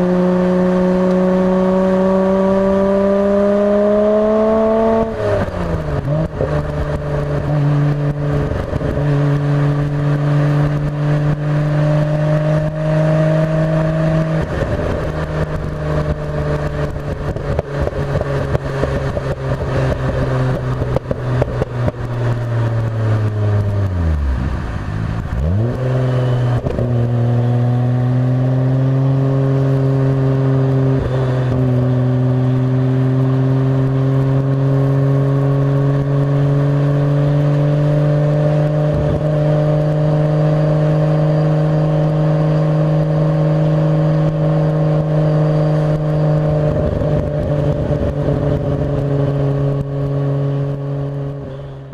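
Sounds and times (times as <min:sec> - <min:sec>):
car engine running: 0:00.0 - 0:51.9.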